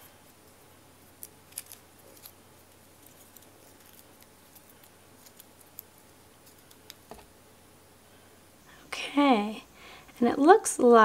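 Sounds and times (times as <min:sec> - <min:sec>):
cable unwinding rustling: 0:01.0 - 0:07.2.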